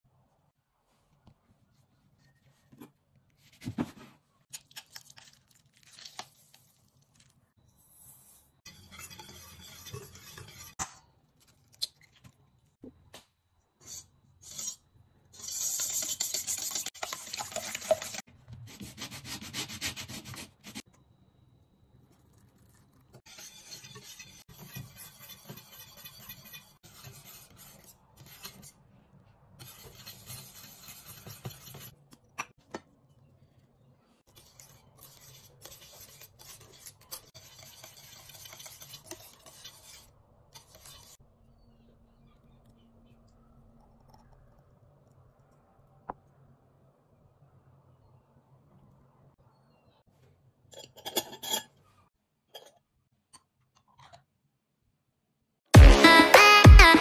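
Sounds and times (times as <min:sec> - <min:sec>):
whisk scraping steel bowl: 0:08.0 - 0:10.8, 0:13.8 - 0:20.8, 0:23.1 - 0:28.8, 0:29.6 - 0:32.0, 0:34.3 - 0:41.2
whisk stirring in saucepan: 0:08.2 - 0:10.8, 0:13.9 - 0:14.8, 0:15.4 - 0:20.8, 0:22.2 - 0:28.8, 0:29.6 - 0:32.0, 0:34.3 - 0:41.2.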